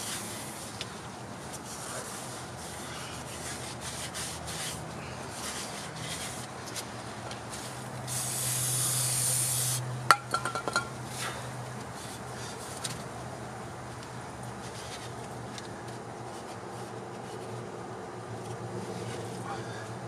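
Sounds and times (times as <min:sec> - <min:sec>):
aerosol spray hiss: 0:08.1 - 0:09.8.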